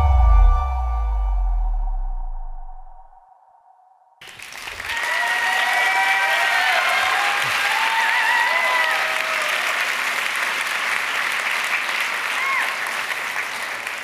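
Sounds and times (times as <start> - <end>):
crowd applauding: 4.2 - 14.0.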